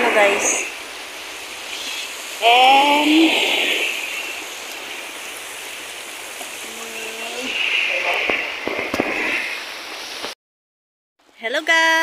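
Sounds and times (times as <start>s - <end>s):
person's voice: 0.0s - 0.7s, 1.8s - 3.9s, 6.6s - 8.3s
surf washing onto beach: 0.0s - 10.4s.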